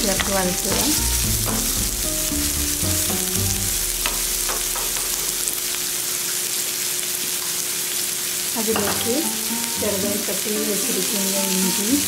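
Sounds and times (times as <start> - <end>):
wooden spatula stirring: 0.0 - 5.4
onions sizzling in hot oil: 0.0 - 12.0.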